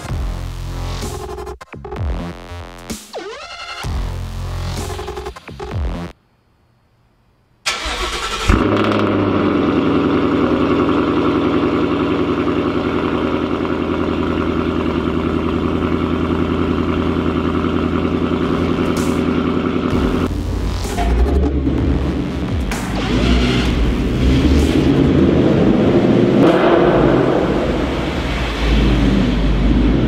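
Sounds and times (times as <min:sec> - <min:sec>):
car engine idling: 0:07.7 - 0:30.0.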